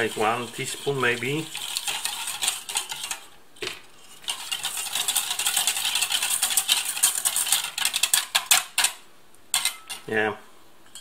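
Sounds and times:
whisk clattering in metal bowl: 0:00.0 - 0:03.3, 0:04.2 - 0:09.0, 0:09.6 - 0:10.1.

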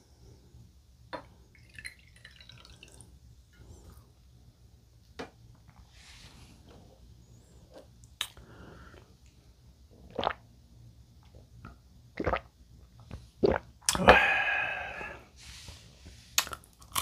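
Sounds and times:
person gulping: 0:10.0 - 0:10.4, 0:12.2 - 0:12.5, 0:13.4 - 0:15.2.

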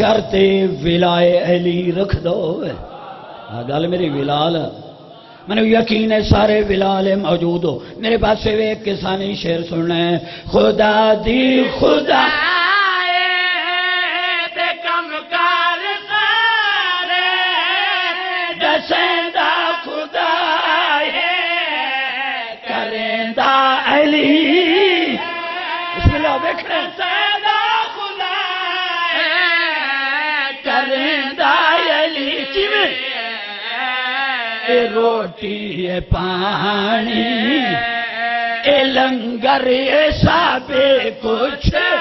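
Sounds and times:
men chanting melodically: 0:10.2 - 0:42.0.

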